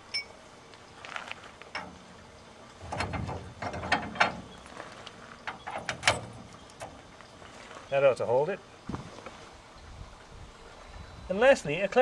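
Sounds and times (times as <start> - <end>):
metal hitch pin clicks and clinks: 5.5 - 7.0.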